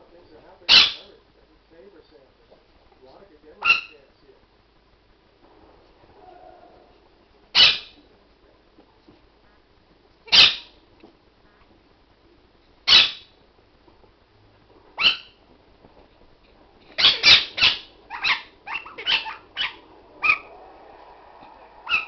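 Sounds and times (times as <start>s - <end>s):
small dog barking: 15.0s - 15.4s, 17.0s - 20.5s.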